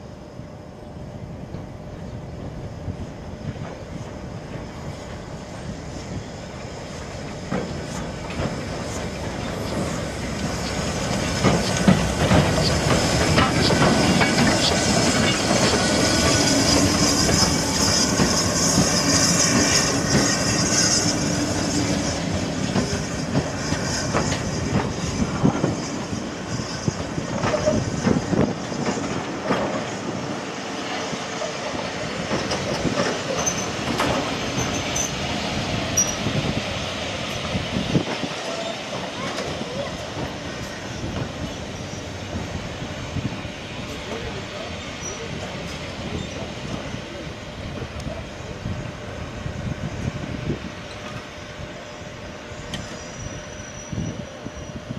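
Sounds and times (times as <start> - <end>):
steam train rolling slowly: 0.0 - 54.9
steam hiss: 2.6 - 54.9
wheels clattering over rail joints: 7.5 - 20.5
wheel squeal: 33.0 - 35.3, 35.9 - 36.4, 44.8 - 45.3, 52.5 - 54.9.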